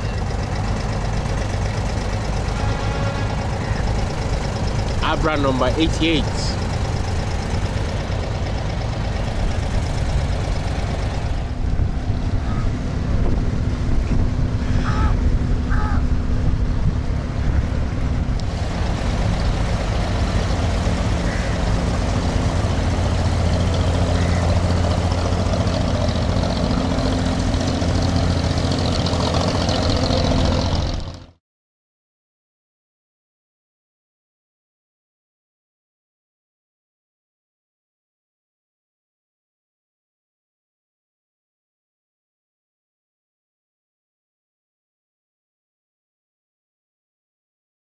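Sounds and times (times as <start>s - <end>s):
boat diesel engine humming: 0.0s - 31.4s.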